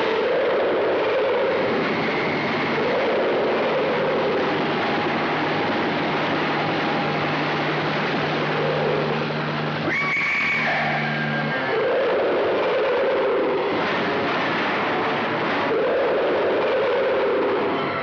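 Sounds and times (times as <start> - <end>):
helicopter engine and rotors: 0.0 - 18.0
low hum: 0.0 - 18.0
shrill tone: 9.8 - 12.3.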